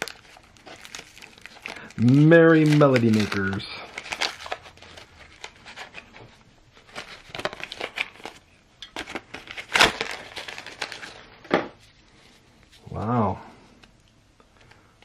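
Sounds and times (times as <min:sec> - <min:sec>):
cellophane wrap crinkling: 0:00.0 - 0:11.5.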